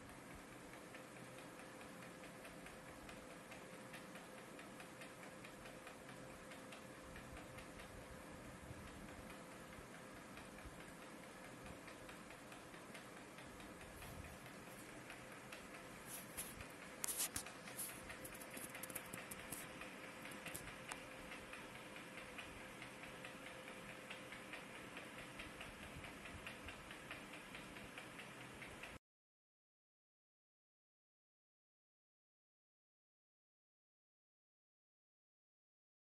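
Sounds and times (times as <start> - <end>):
faint ticking: 0.0 - 29.0
steady low hum: 0.0 - 29.0
small clicks: 10.4 - 29.0.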